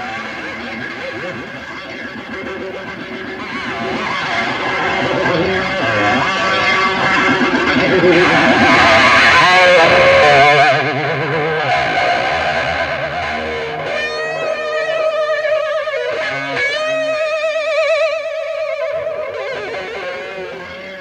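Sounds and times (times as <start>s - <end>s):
electric guitar with vibrato: 0.0s - 21.0s
low bass notes: 2.2s - 17.2s.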